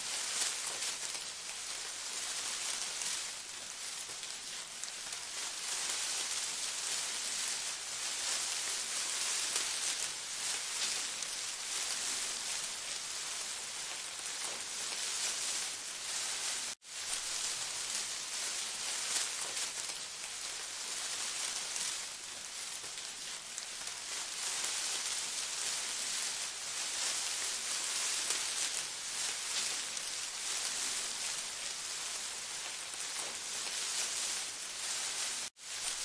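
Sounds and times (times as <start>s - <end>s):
dense steady hiss: 0.0s - 36.0s.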